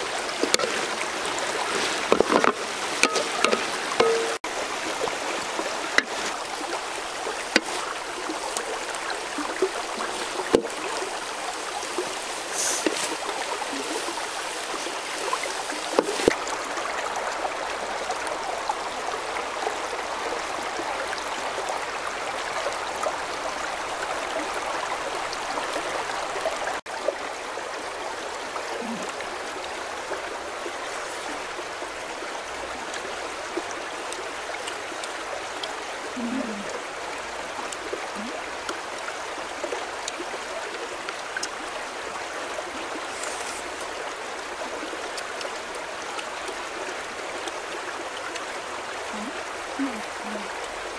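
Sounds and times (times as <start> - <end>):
river rushing over rocks: 0.0 - 50.9.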